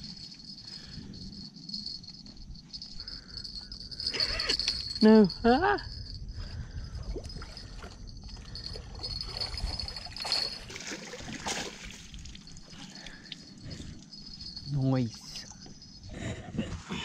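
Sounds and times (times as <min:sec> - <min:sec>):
water trickling and splashing: 0:07.1 - 0:15.5.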